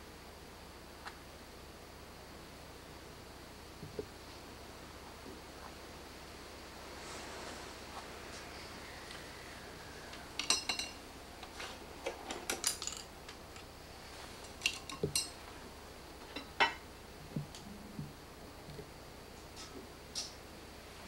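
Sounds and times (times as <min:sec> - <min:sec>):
painting tools clinking: 0:10.4 - 0:11.0, 0:14.4 - 0:15.4.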